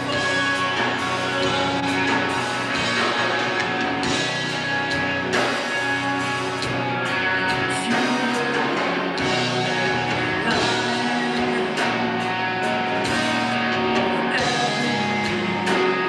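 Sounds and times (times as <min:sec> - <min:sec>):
man singing: 0:00.0 - 0:02.3, 0:07.4 - 0:16.0
bass guitar: 0:00.0 - 0:16.0
distorted electric guitars: 0:00.0 - 0:16.0
drum kit: 0:00.0 - 0:16.0.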